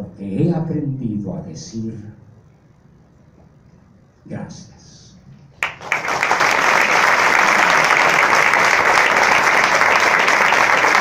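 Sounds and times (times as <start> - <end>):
audience applause: 5.6 - 11.0.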